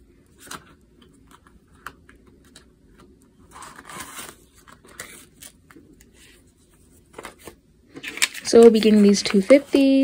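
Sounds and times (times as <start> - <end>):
banknotes rustling: 2.3 - 10.0
plastic envelope crinkling: 7.1 - 10.0.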